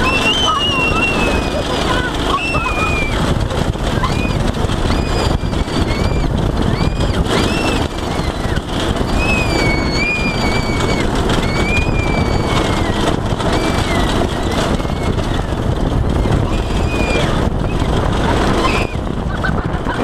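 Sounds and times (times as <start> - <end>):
high-pitched wavering squeals: 0.0 - 3.2, 4.0 - 15.5
go-kart engine running: 0.0 - 20.0
wind on the microphone: 0.0 - 20.0.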